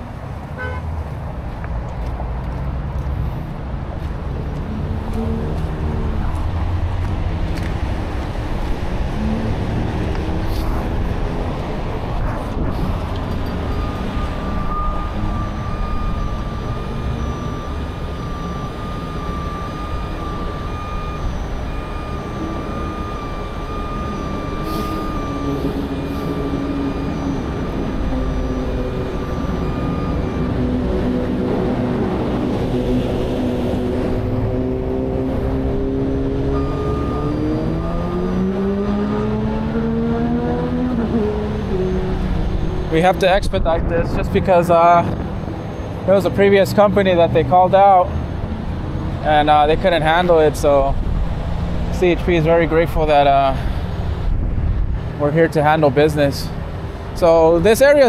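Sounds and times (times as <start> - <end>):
freeway traffic rumble: 0.0 - 58.0
diesel engine revving up: 3.1 - 58.0
electronic warning beeper: 12.7 - 33.1, 36.4 - 39.5, 41.4 - 46.6.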